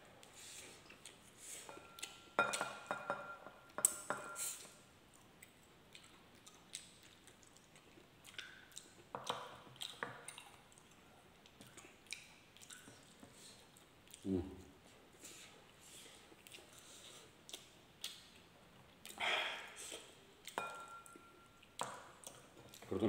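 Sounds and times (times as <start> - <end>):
ceramic bowls clinking: 1.7 - 4.4, 20.6 - 21.5
eating sounds: 3.9 - 20.8, 21.6 - 23.0.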